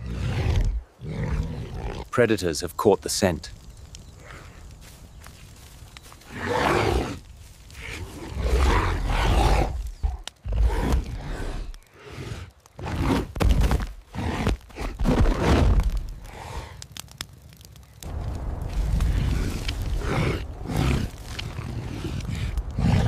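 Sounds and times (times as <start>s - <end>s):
big cat growling and snarling: 0.0s - 2.1s, 6.3s - 16.8s, 19.0s - 23.0s.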